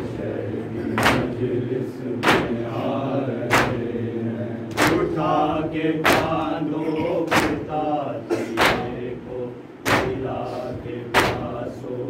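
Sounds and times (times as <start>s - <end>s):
men chanting together: 0.0s - 12.0s
hands slapping chests: 2.2s - 2.6s, 3.5s - 3.8s, 4.7s - 5.0s, 7.3s - 7.6s, 9.8s - 10.2s.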